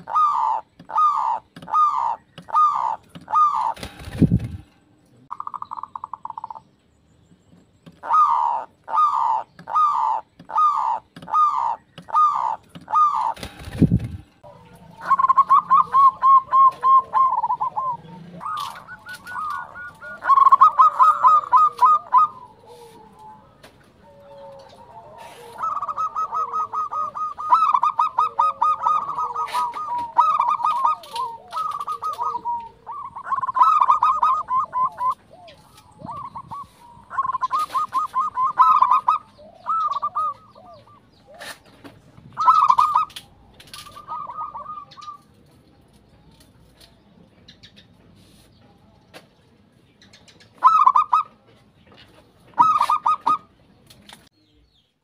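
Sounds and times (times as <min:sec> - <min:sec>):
dove rapid staccato cooing: 0:00.0 - 0:04.6, 0:07.9 - 0:23.4, 0:24.0 - 0:41.6, 0:42.4 - 0:45.2, 0:50.6 - 0:51.3, 0:52.5 - 0:53.5.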